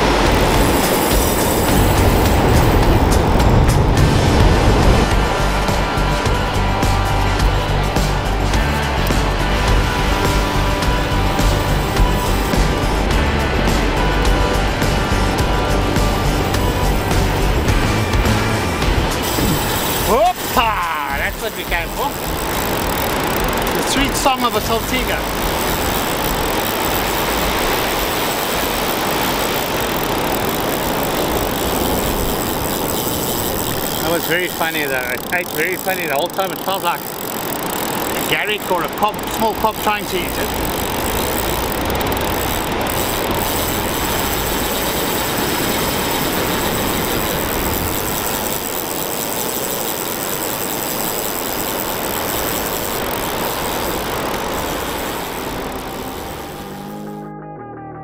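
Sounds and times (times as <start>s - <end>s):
breaking waves: 0.0s - 7.1s, 17.1s - 56.8s
wind rumbling on microphone: 0.0s - 8.4s.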